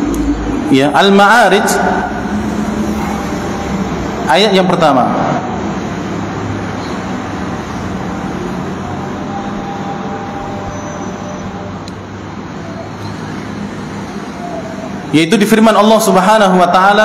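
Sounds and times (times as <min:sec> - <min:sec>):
distant road traffic rumble: 0:00.0 - 0:16.8.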